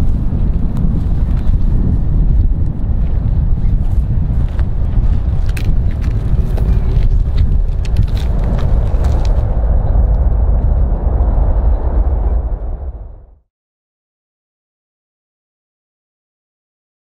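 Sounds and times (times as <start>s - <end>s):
jet engines rumbling: 0.0s - 13.4s
wind buffeting microphone: 0.0s - 13.4s
crackling: 3.7s - 12.8s.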